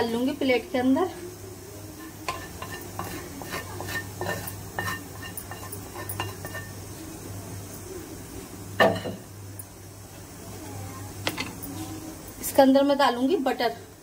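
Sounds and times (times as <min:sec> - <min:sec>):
spoon scraping a pan: 0:01.9 - 0:06.9.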